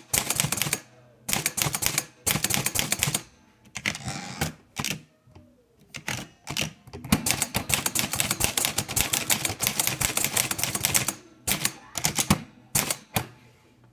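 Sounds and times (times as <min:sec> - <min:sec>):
typewriter keystrokes: 0:00.0 - 0:03.2, 0:05.9 - 0:13.3.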